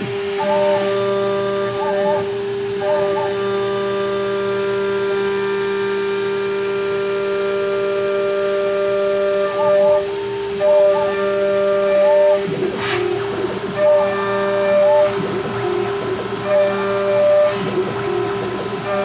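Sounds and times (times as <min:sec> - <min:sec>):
milling machine spindle whine: 0:00.0 - 0:19.0
axis drives whirring: 0:08.7 - 0:19.0.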